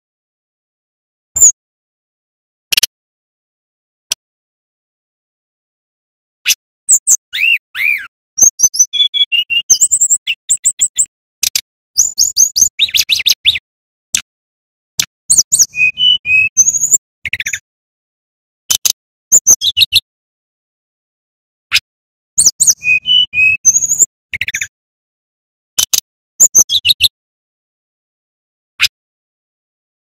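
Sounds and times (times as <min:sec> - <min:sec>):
bird singing chattering notes: 0:06.5 - 0:13.6, 0:15.3 - 0:17.6, 0:18.8 - 0:20.0, 0:22.4 - 0:24.7, 0:25.8 - 0:27.1.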